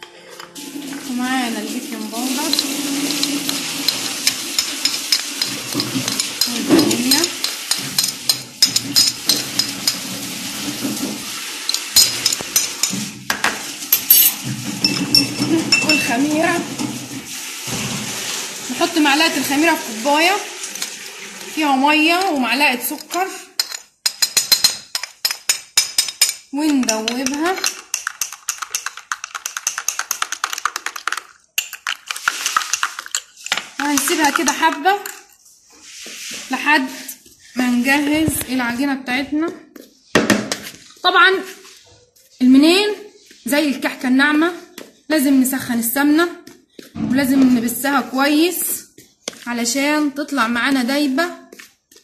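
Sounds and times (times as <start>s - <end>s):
spoon and containers clicking: 2.5s - 10.0s, 11.6s - 13.0s, 22.2s - 35.4s.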